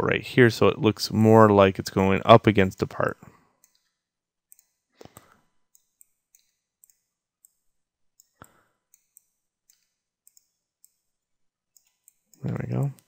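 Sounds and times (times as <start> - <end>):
computer mouse and keyboard clicks: 8.2 - 11.0.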